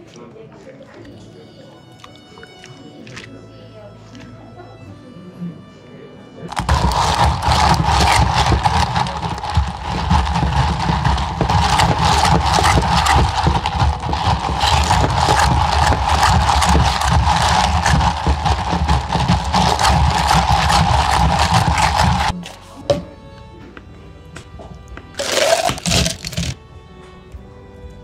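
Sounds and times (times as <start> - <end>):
drink shaken in plastic cup: 6.5 - 22.4, 25.2 - 26.6.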